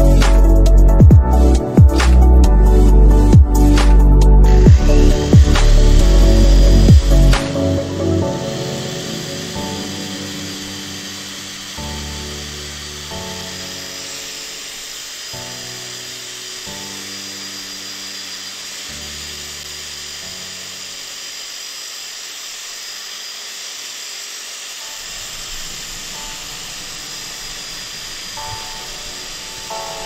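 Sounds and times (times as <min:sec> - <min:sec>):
background music with bass notes: 0:00.0 - 0:10.8
electric polisher whining: 0:00.0 - 0:30.0.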